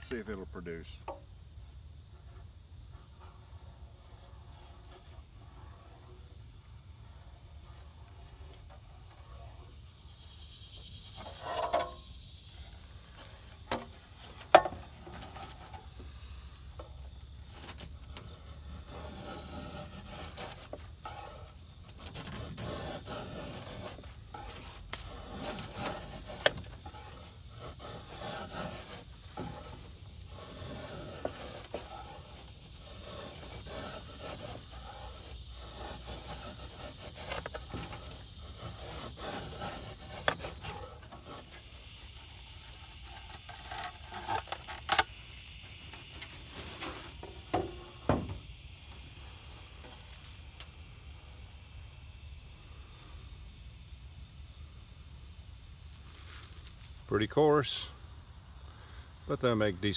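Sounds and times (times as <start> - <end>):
high insect drone: 0.0 - 59.9
knife scraping wood: 10.7 - 50.7.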